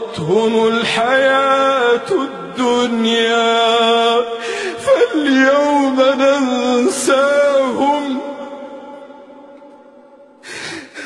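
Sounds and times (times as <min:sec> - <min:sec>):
man reciting with echo: 0:00.0 - 0:11.0
gasping intake of breath: 0:04.4 - 0:04.8, 0:10.4 - 0:11.0.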